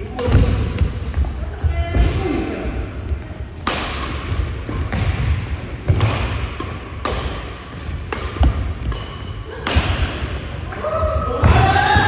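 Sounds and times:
rackets hitting shuttlecock: 0:00.1 - 0:01.2, 0:03.5 - 0:11.7.

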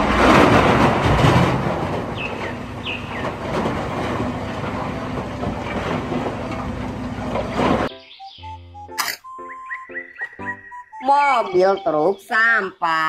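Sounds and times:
earth pouring into truck: 0:00.0 - 0:07.9
diesel engine rumble: 0:00.0 - 0:08.0
bird chirps: 0:07.9 - 0:12.4.

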